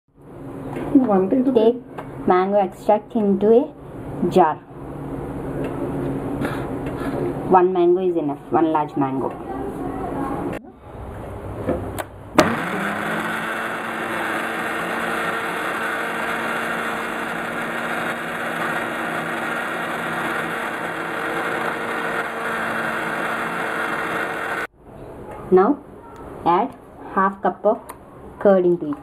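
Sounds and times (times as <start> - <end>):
blender motor running: 12.4 - 24.7.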